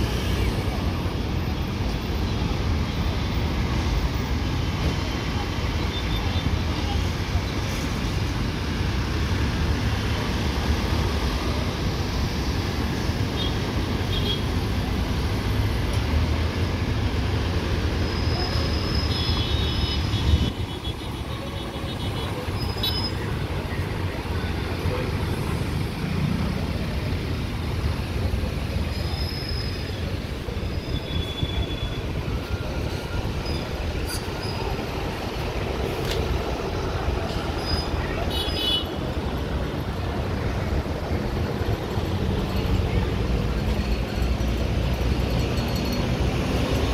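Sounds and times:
hum of passing vehicles: 0:20.0 - 0:38.3.

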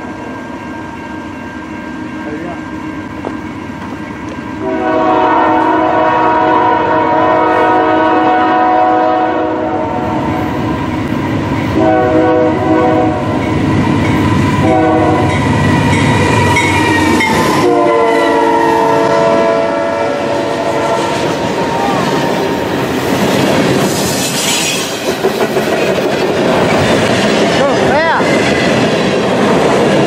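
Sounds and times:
train rumbling on rails: 0:00.0 - 0:30.0
locomotive air horn blasts: 0:04.6 - 0:10.2, 0:11.8 - 0:13.3, 0:14.6 - 0:15.4, 0:17.5 - 0:21.4.

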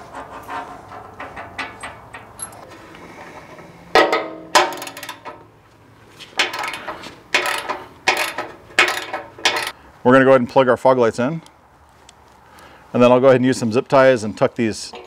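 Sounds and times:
wrench clanking on metal: 0:00.0 - 0:05.5, 0:06.4 - 0:09.8.

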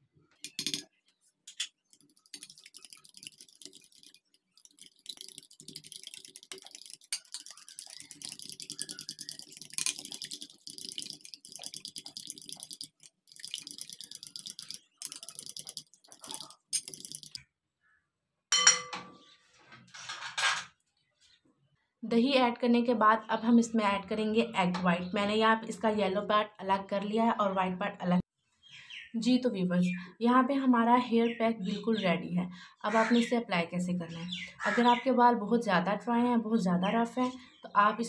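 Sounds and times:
spoon clinking on bowl: 0:00.4 - 0:00.9, 0:18.5 - 0:19.0
spoon scraping a ceramic bowl: 0:01.5 - 0:10.3.

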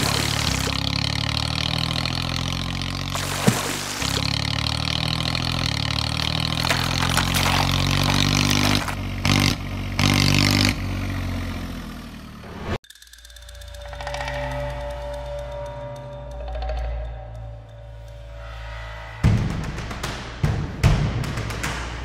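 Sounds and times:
tractor engine revving: 0:00.0 - 0:12.8.

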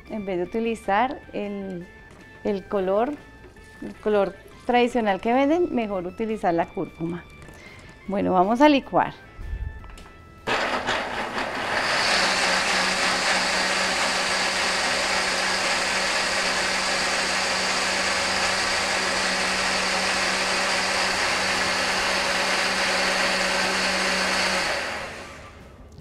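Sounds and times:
blender running: 0:10.5 - 0:25.6.

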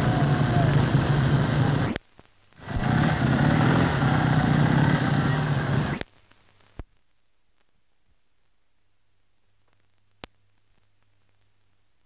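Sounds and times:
vehicle engines rumbling: 0:00.0 - 0:02.0, 0:02.6 - 0:06.0.

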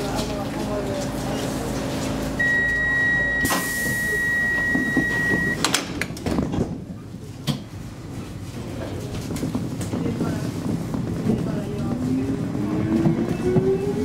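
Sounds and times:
high electronic beep: 0:02.4 - 0:05.6
lift doors clicking and knocking: 0:04.4 - 0:06.8.

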